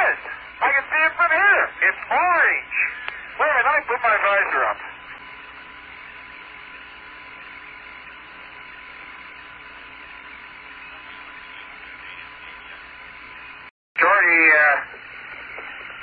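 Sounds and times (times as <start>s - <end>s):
radio hiss: 0.0s - 16.0s.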